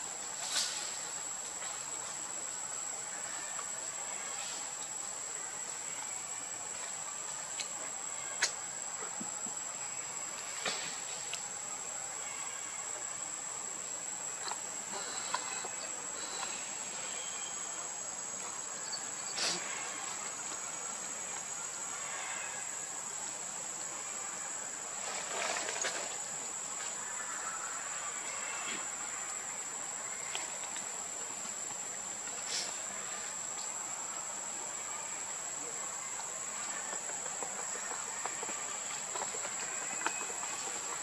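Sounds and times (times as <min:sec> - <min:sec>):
background hiss: 0:00.0 - 0:41.0.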